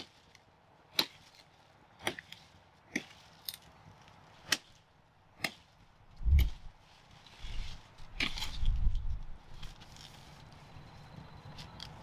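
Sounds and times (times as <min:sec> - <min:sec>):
knife chopping sugarcane: 0:00.9 - 0:01.4, 0:05.4 - 0:05.7.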